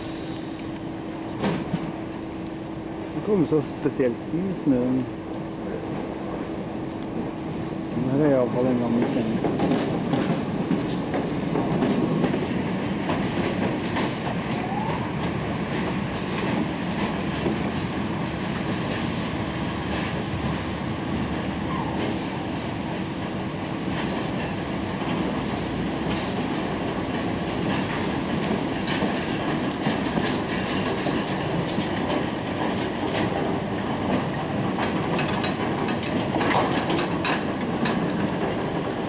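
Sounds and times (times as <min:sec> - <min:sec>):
railcar rolling rumble: 0:00.0 - 0:39.0
wheels clicking over rail joints: 0:08.3 - 0:17.9, 0:23.9 - 0:39.0
faint wheel squeal: 0:21.6 - 0:22.2.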